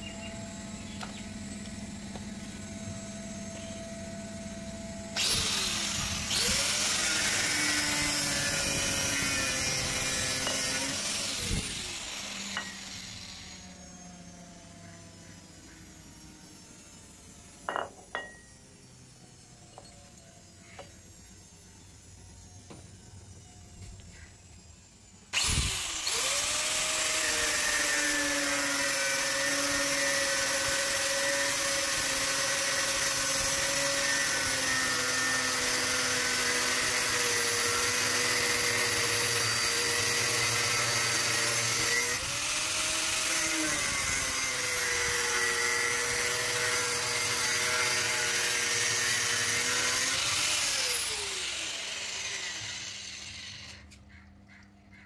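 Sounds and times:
angle grinder cutting steel: 2.1 - 14.4, 25.3 - 54.0.

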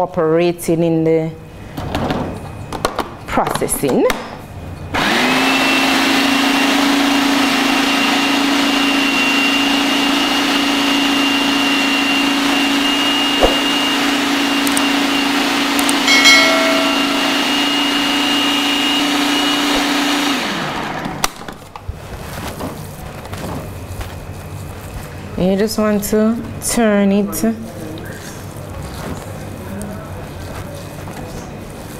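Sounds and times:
food processor motor running: 5.0 - 13.0, 19.0 - 21.2.

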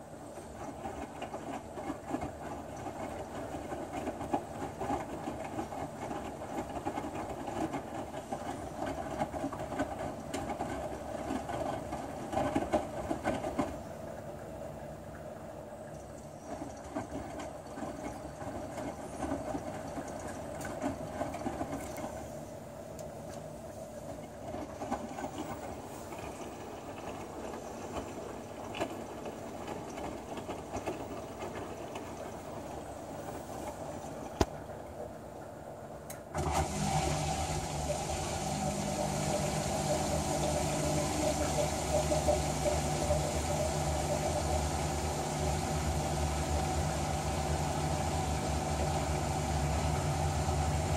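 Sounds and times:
washing machine drum sloshing: 0.0 - 35.6, 36.3 - 50.9
drain pump humming: 0.0 - 50.9
water rushing: 36.4 - 50.9.

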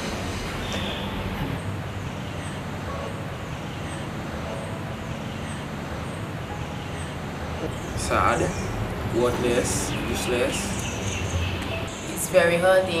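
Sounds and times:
distant road traffic rumble: 0.0 - 13.0.

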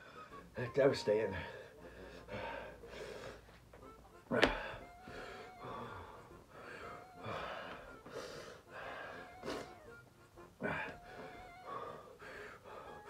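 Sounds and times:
man breathing hard and gasping: 1.4 - 3.6, 4.3 - 10.0, 10.6 - 13.0.

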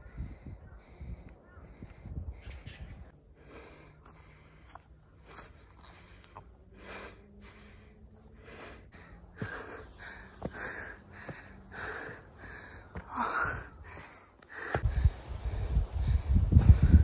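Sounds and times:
person breathing hard: 0.0 - 17.0
footsteps on dirt: 9.0 - 15.2.

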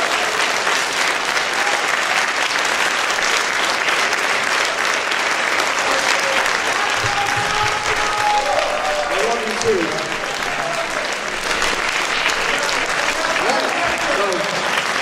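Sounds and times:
crowd applauding: 0.0 - 15.0
faint voices: 5.7 - 14.8.

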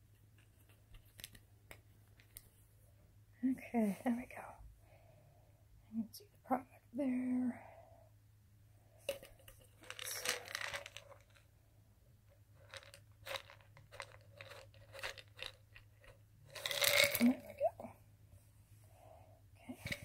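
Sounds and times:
tablets rattling in pill bottle: 9.1 - 11.5, 12.5 - 17.6.

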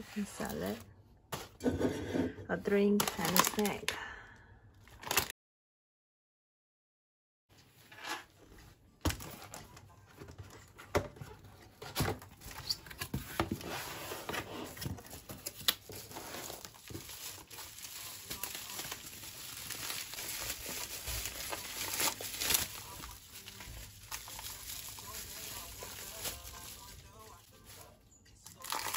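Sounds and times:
bubble wrap crinkling: 2.9 - 3.9, 4.9 - 5.3, 14.7 - 28.9.

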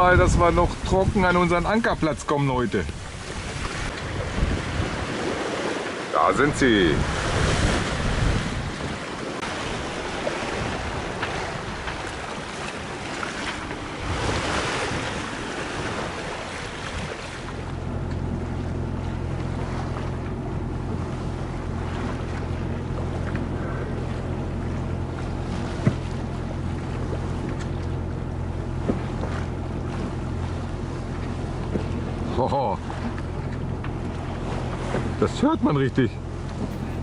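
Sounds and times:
wind buffeting microphone: 0.0 - 32.3, 36.2 - 37.0
boat engine droning: 0.0 - 37.0
choppy water: 0.0 - 37.0.

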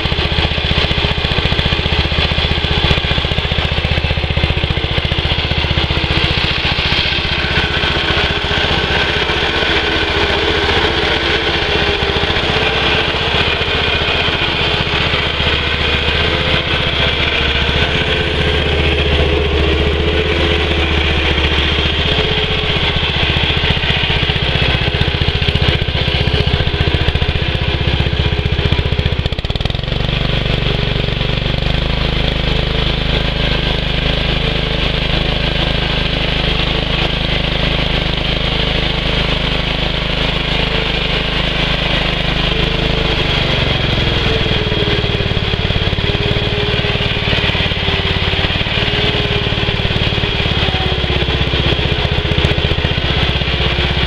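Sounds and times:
small engine running: 0.0 - 54.0.

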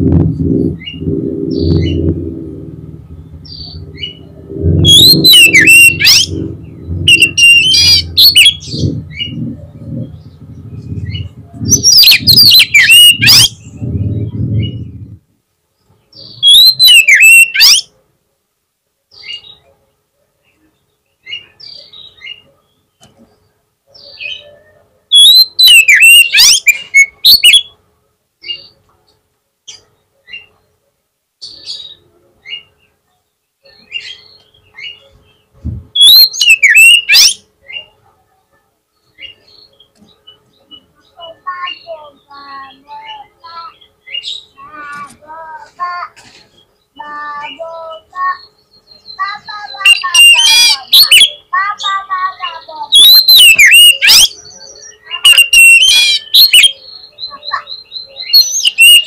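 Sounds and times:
low rumble: 0.0 - 15.3
soft bird calls: 0.2 - 15.2, 15.8 - 17.9, 19.1 - 27.8, 31.4 - 59.0
bird whistled song: 3.2 - 15.0, 16.2 - 17.9, 25.1 - 27.7, 36.0 - 37.9, 47.5 - 59.0.

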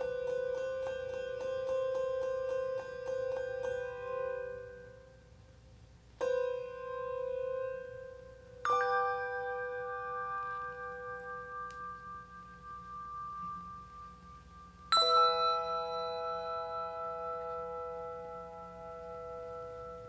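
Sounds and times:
bell-like chimes ringing: 8.6 - 20.0.

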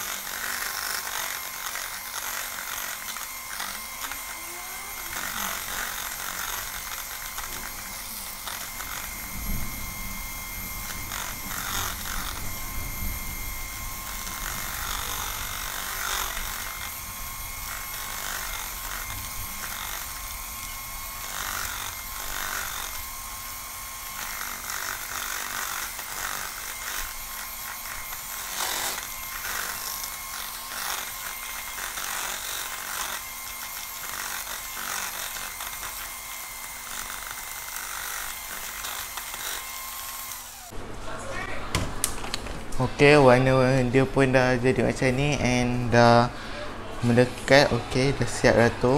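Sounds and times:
electric hand mixer running: 0.0 - 40.8.

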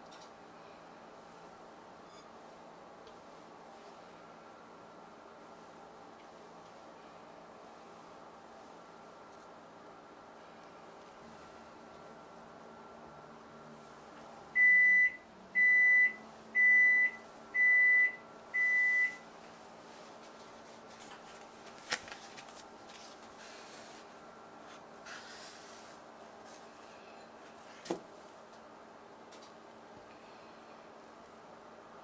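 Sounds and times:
appliance high beeps: 14.6 - 19.2.

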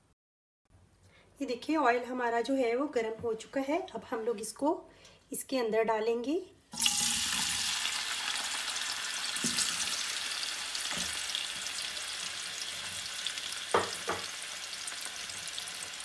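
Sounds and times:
potatoes sizzling in oil: 6.8 - 16.0.

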